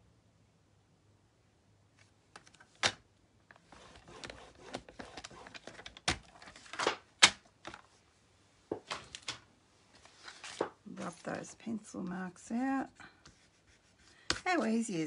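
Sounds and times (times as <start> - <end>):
card rustling and sliding: 3.6 - 7.1, 9.9 - 11.2.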